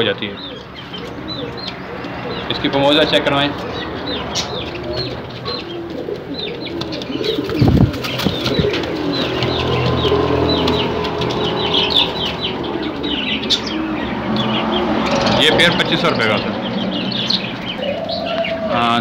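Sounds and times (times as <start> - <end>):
pigeons cooing: 0.0 - 19.0
small birds chirping: 0.0 - 19.0
wings fluttering: 3.6 - 14.0.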